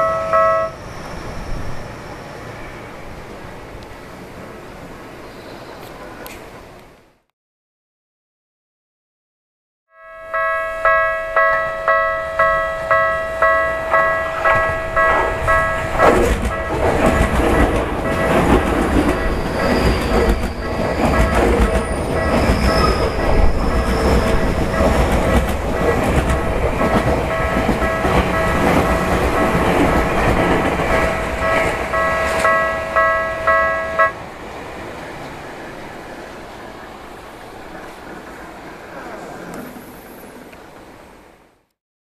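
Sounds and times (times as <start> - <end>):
level crossing bell ringing: 0.0 - 0.8, 9.9 - 17.4, 20.7 - 34.2
train wheels clattering: 10.9 - 34.2.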